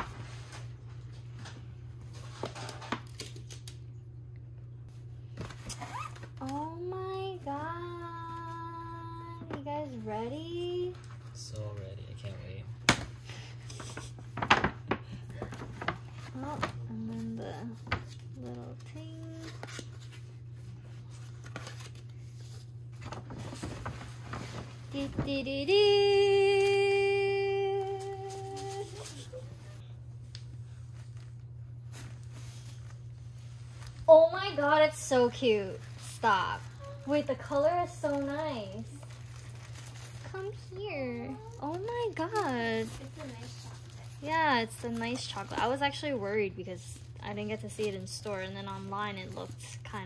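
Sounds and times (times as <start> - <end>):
paper bag rustling: 13.8 - 29.8, 30.8 - 50.0
person humming: 25.7 - 29.4.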